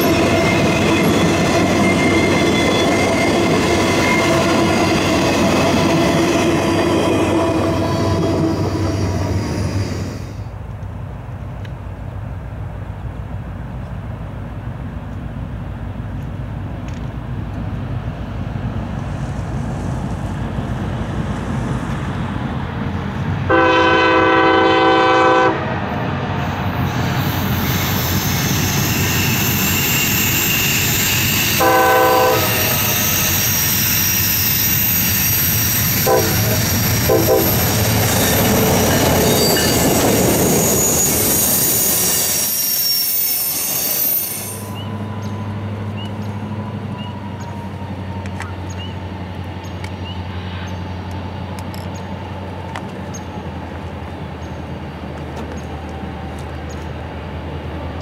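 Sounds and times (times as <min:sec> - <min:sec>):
locomotive engine and wheel noise: 0:00.0 - 0:58.0
locomotive horn blasts: 0:23.5 - 0:25.7, 0:31.4 - 0:33.0, 0:36.0 - 0:37.8.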